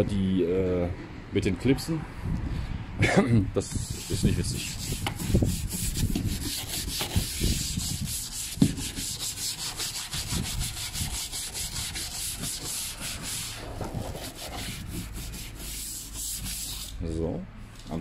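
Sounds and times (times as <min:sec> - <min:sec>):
hand scrubbing car door trim: 0:03.8 - 0:17.0.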